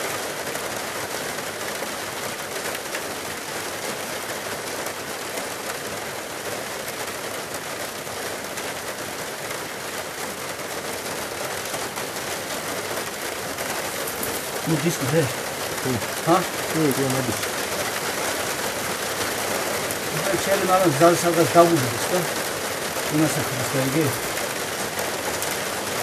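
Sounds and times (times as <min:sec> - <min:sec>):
water rushing with rock: 0:08.4 - 0:26.0.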